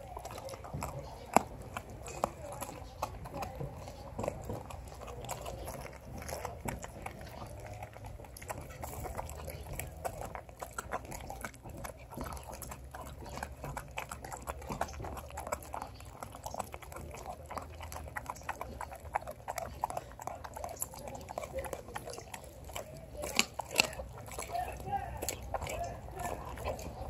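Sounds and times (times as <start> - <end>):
dog chewing bone crunches: 0.0 - 27.0.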